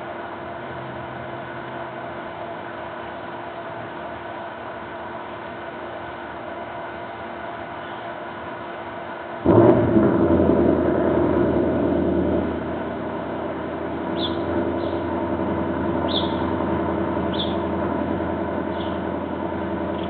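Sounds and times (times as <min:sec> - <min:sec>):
vehicle engine running: 0:09.4 - 0:20.0
bird chirps: 0:16.0 - 0:16.5, 0:17.3 - 0:17.6, 0:18.7 - 0:19.0.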